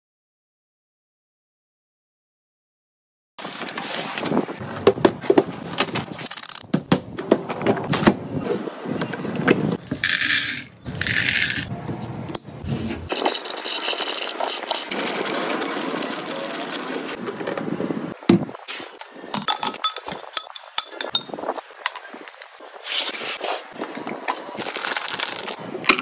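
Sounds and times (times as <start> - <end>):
lollipops clinking in glass bowl: 9.8 - 11.7
plastic wrappers crinkling: 9.8 - 11.7, 24.6 - 25.6.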